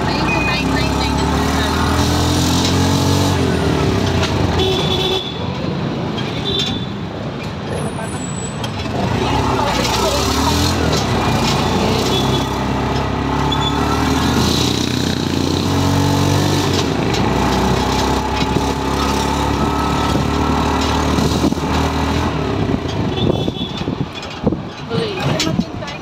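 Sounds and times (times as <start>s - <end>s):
road and traffic noise: 0.0s - 26.0s
small vehicle engine running: 8.8s - 23.7s.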